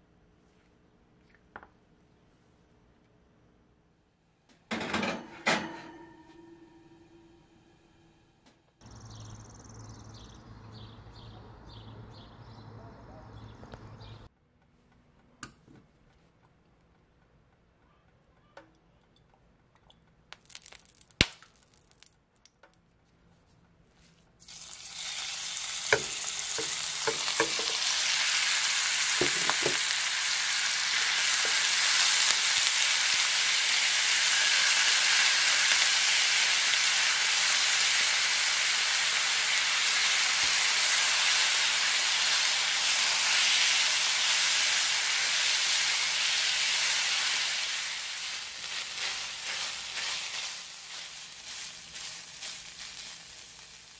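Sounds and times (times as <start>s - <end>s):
minced meat sizzling in a pan: 24.4s - 53.9s.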